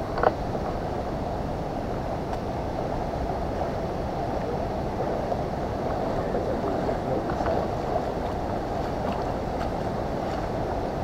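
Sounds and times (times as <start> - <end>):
water rushing over stones: 0.0 - 11.0
feet wading splashes: 6.7 - 11.0.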